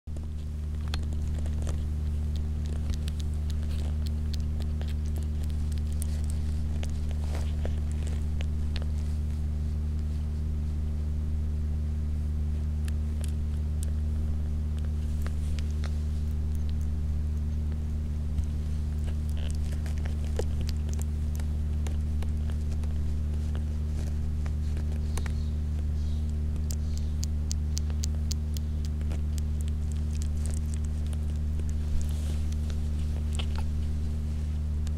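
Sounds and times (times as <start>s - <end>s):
low electrical hum: 0.0s - 34.9s
kitten suckling wet clicks: 0.2s - 10.1s, 12.8s - 34.9s.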